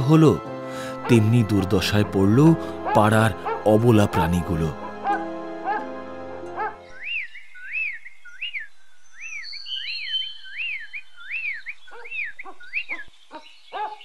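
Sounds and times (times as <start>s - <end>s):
bird whistled chirp: 6.8s - 14.0s.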